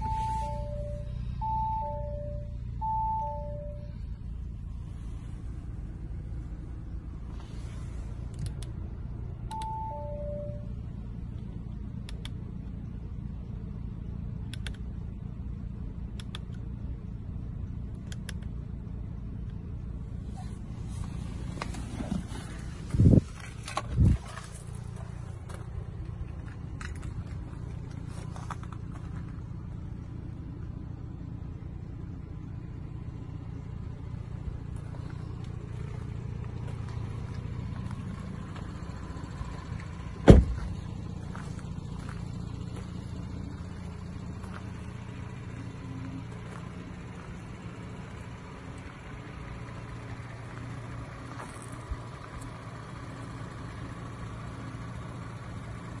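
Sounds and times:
car engine idling: 0:00.0 - 0:56.0
car door shutting: 0:21.4 - 0:24.4, 0:40.2 - 0:40.8.

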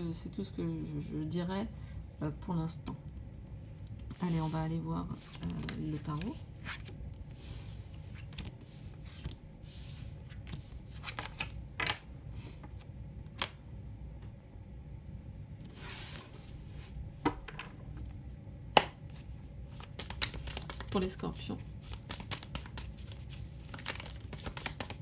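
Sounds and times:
cards swishing on tabletop: 0:04.1 - 0:11.5, 0:15.7 - 0:17.0.

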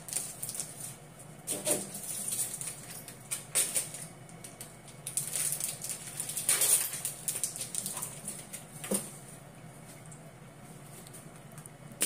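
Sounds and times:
crinkly rustling: 0:00.0 - 0:09.4.

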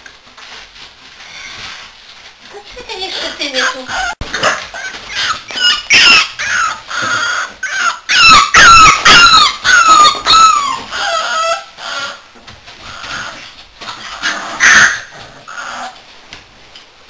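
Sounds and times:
puppies squealing and yelping: 0:03.4 - 0:16.0.

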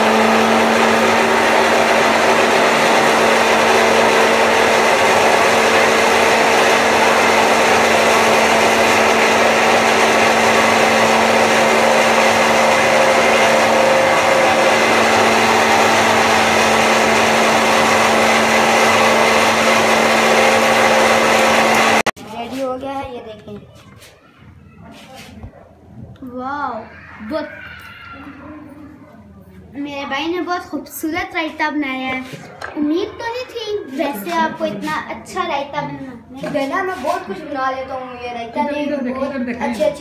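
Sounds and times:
electric blender running: 0:00.0 - 0:22.2.

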